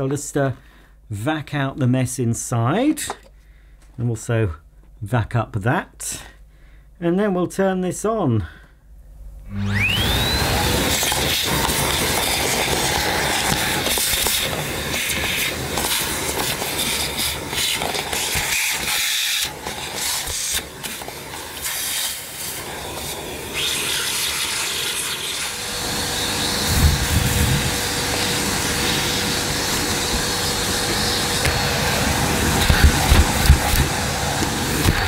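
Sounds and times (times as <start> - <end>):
vacuum cleaner running: 9.4 - 35.0
steady whine: 25.4 - 35.0.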